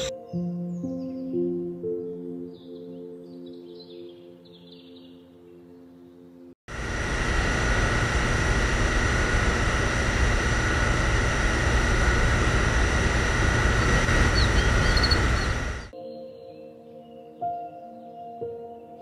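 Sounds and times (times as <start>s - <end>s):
model engine running: 6.7s - 15.9s.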